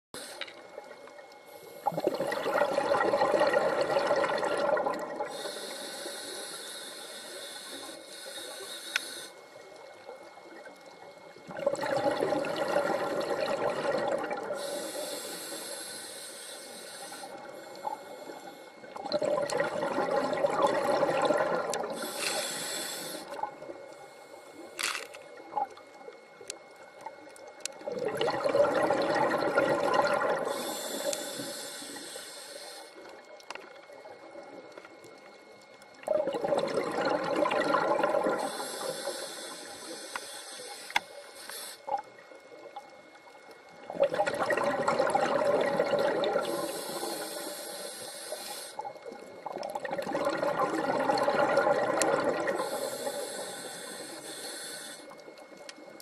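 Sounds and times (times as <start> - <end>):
regulator hiss on inhale: 0.2 - 0.7, 1.5 - 2.2, 5.2 - 9.9, 14.4 - 19.0, 21.8 - 25.3, 30.0 - 33.6, 38.2 - 42.1, 46.3 - 49.2, 52.4 - 56.0
exhaled bubbles rushing: 1.8 - 5.3, 11.4 - 14.6, 18.9 - 22.0, 27.8 - 31.1, 35.9 - 38.5, 43.8 - 46.7, 49.0 - 52.7.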